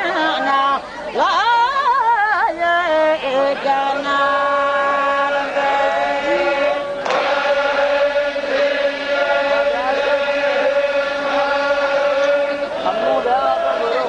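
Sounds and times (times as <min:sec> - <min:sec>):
voices chanting together: 0:03.1 - 0:14.0.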